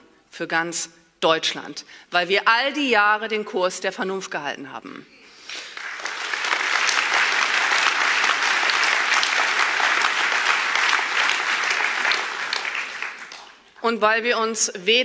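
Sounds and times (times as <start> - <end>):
audience clapping: 5.5 - 13.8.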